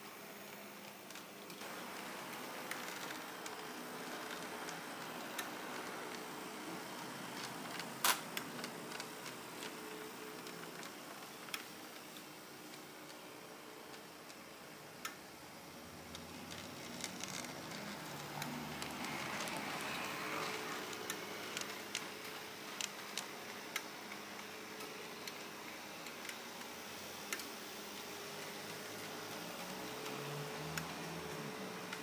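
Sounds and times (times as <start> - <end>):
model tram motor whir: 1.0 - 32.0
wheels clicking on track: 15.9 - 27.6.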